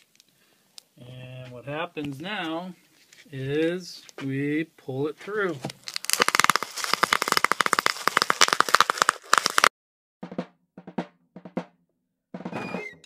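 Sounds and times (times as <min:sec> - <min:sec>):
bubble wrap popping: 0:05.6 - 0:09.7
drum hits: 0:10.2 - 0:13.0.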